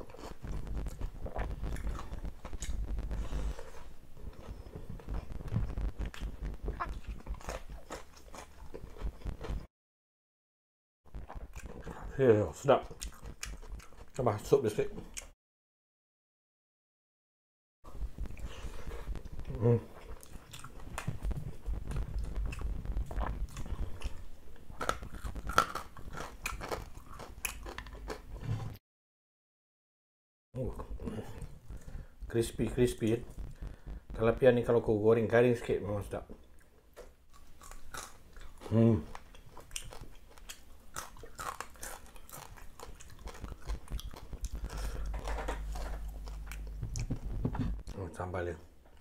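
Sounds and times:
chewing: 0.0s - 9.6s, 11.2s - 12.2s, 12.8s - 14.3s, 18.2s - 28.7s, 36.4s - 47.4s
low steady hum: 17.9s - 25.6s, 42.0s - 49.0s.

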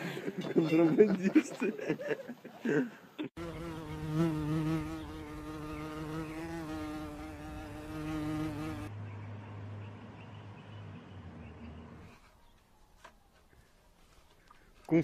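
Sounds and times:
flying insect buzzing: 3.4s - 8.9s.

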